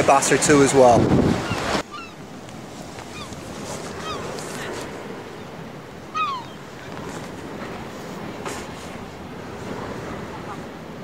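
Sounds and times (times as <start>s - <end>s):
sea surf: 0.0s - 11.0s
wind: 0.0s - 11.0s
short falling bird calls: 3.1s - 4.8s, 6.1s - 6.9s.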